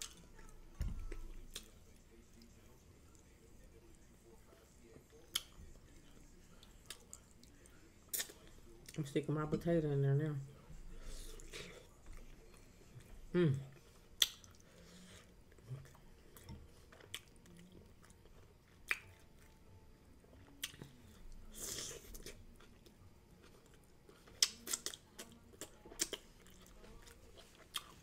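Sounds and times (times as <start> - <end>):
close-miked chewing: 0.0 - 9.1, 11.1 - 19.6, 20.2 - 28.0.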